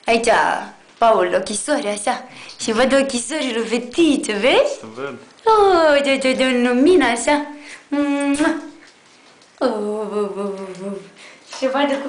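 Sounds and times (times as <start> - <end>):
woman humming: 7.9 - 8.8, 9.6 - 11.2.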